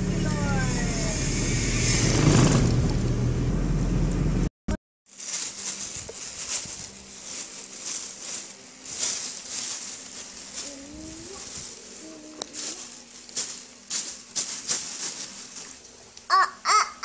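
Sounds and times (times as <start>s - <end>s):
rustling of school supplies: 5.1s - 15.8s
faint wavering voice-like tone: 10.6s - 12.9s.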